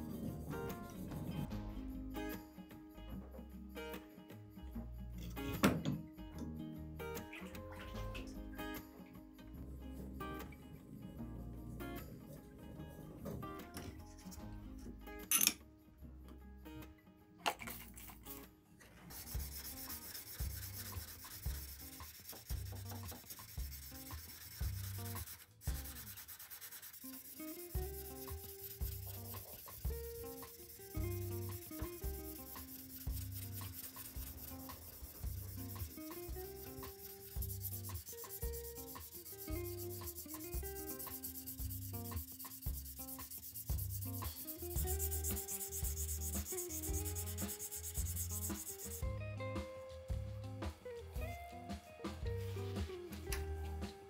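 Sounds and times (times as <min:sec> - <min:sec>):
background music with steady beat: 0:00.0 - 0:17.2, 0:19.1 - 0:54.0
abrasive stick scratching steel blade: 0:19.1 - 0:49.0.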